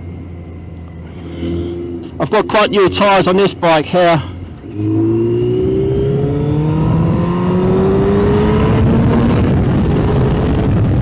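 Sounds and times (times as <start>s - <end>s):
motorcycle engine accelerating: 0.0s - 11.0s
wind rush: 4.7s - 11.0s.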